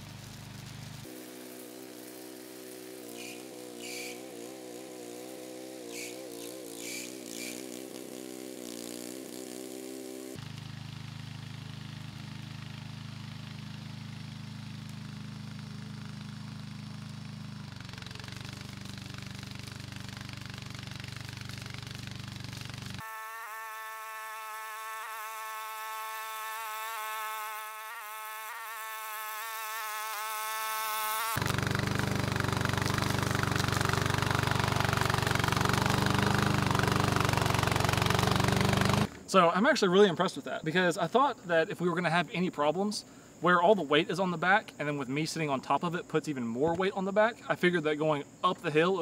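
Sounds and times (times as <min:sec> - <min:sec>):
small lawn mower engine running: 0:00.0 - 0:39.3.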